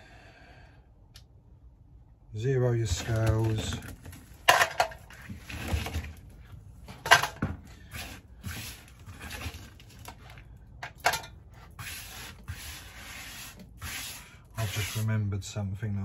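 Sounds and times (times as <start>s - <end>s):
wax pieces clattering into metal pot: 2.8s - 6.3s, 6.9s - 8.1s
hands rustling and scraping wax: 2.8s - 15.1s.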